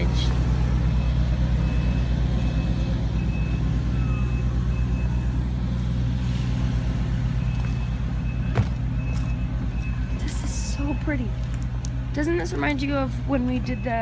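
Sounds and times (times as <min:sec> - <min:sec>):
heavy vehicle engine rumbling: 0:00.0 - 0:14.0
backup alarm beeping: 0:00.9 - 0:05.5, 0:07.2 - 0:11.3, 0:13.2 - 0:14.0.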